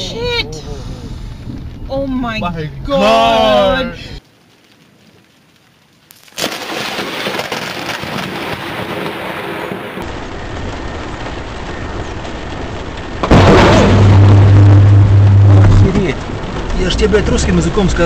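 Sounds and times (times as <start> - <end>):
thunder rumbling: 4.5 - 18.0
thunder crack: 6.4 - 18.0.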